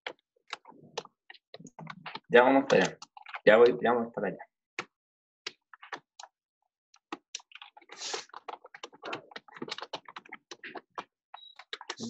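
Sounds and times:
typing on a keyboard: 0.1 - 3.7, 7.0 - 12.0.

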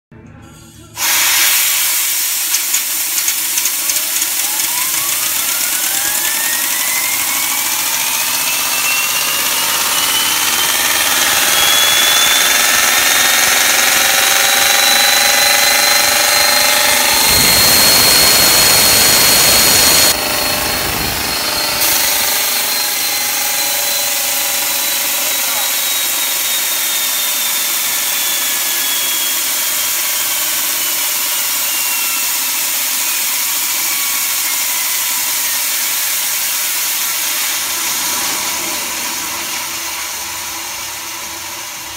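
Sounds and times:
loud steady hiss: 1.0 - 9.9
turbine motor whine: 1.0 - 41.9
deep rushing noise: 14.0 - 23.2.

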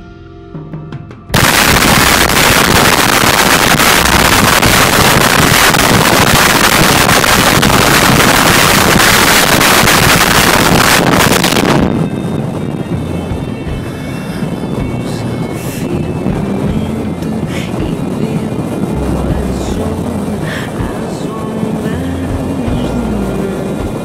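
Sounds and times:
quiet music: 0.0 - 6.3, 11.4 - 24.0
wind and road noise buffeting: 1.3 - 24.0.

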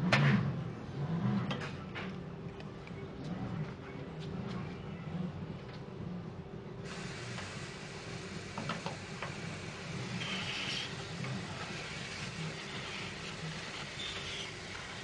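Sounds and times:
steady low hum: 0.0 - 15.0
spray gun air hissing: 6.9 - 15.0.

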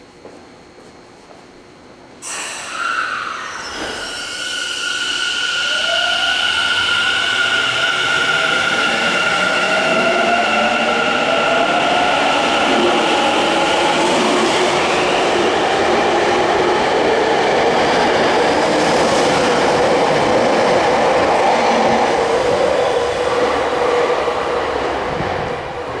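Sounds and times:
electric train inverter whine: 0.0 - 26.0.

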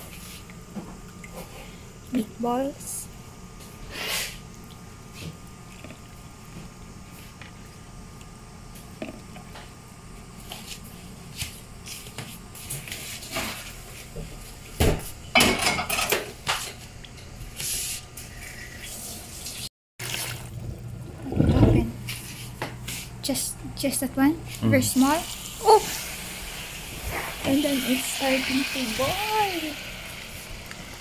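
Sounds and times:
water splashing into plastic tray: 20.0 - 20.6.

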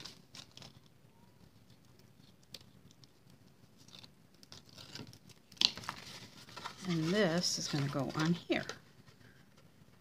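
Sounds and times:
adhesive strips being peeled: 0.0 - 1.0, 1.6 - 7.2
cardstock ticks and rustles: 0.0 - 10.0.

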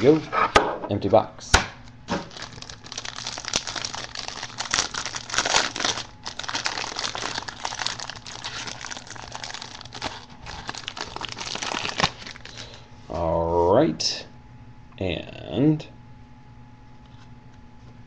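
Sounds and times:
plastic wrapper crinkling: 2.1 - 12.8.

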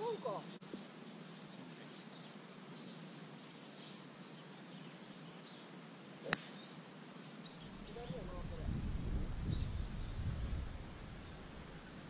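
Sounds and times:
golf club striking ball: 6.3 - 6.7.

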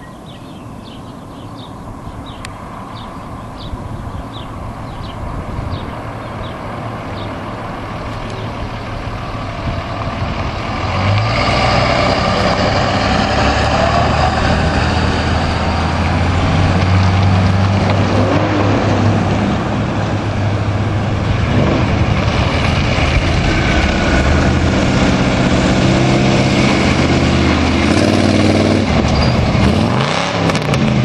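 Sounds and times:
bird chirps: 0.0 - 6.6
trucks driving by: 0.0 - 31.0.

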